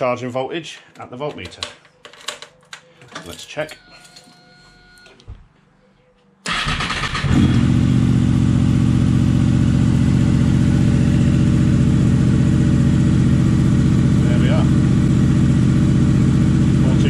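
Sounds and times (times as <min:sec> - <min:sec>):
motorcycle starter cranking: 0:06.5 - 0:07.4
motorcycle engine idling: 0:07.3 - 0:17.0.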